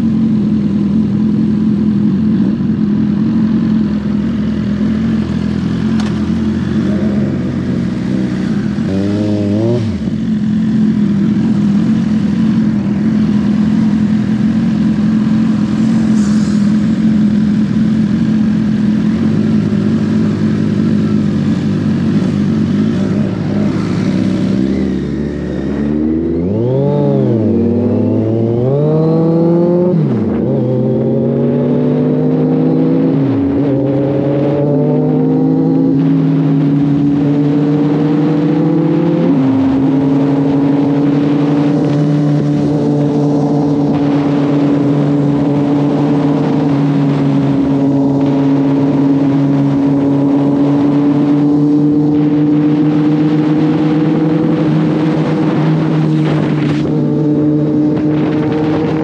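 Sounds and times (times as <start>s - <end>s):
motorcycle engines idling: 0.0s - 9.0s, 9.9s - 25.9s
motorcycle accelerating through gears: 0.0s - 59.0s.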